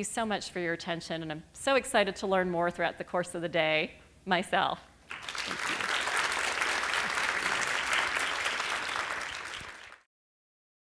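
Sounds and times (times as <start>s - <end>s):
audience applauding: 5.1s - 10.1s.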